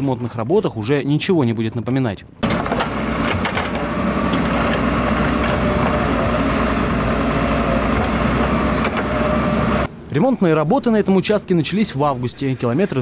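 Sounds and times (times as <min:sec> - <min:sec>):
diesel excavator engine running: 0:02.4 - 0:10.0.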